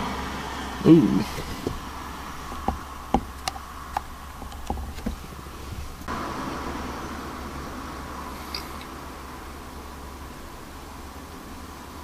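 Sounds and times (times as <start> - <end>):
steady hiss inside car: 0.0 - 12.0
vehicle engine humming: 0.0 - 12.0
sharp taps: 1.4 - 5.9.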